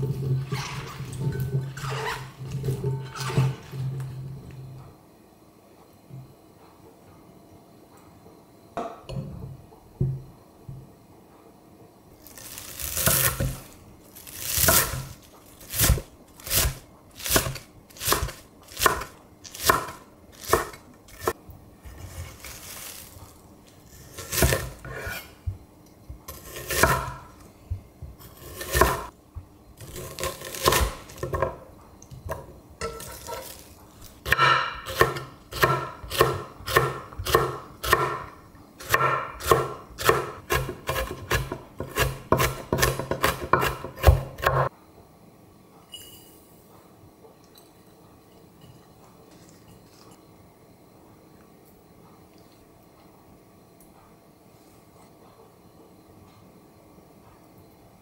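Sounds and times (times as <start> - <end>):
knife chopping on wooden board: 15.7 - 21.4, 34.3 - 38.2, 38.8 - 44.7.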